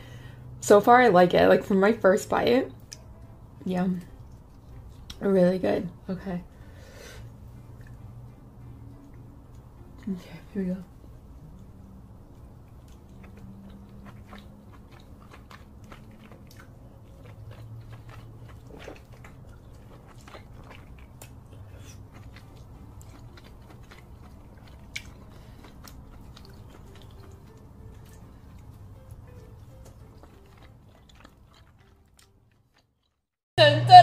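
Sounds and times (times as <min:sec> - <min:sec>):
person chewing: 0:11.2 - 0:33.2.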